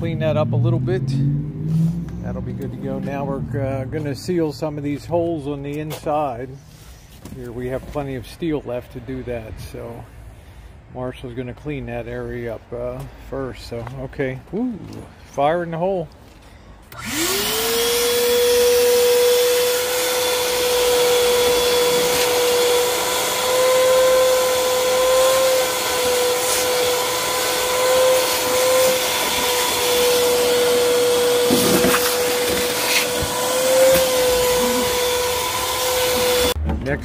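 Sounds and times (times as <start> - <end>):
shop vacuum whining: 16.9 - 36.6.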